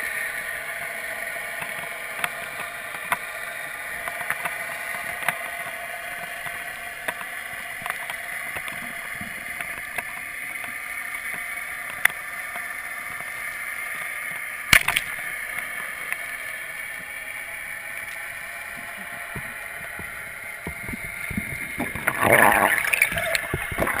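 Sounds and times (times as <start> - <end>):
underwater hiss: 0.0 - 24.0
sharp click: 14.7 - 15.1
burst of water noise: 14.7 - 15.4, 21.3 - 24.0.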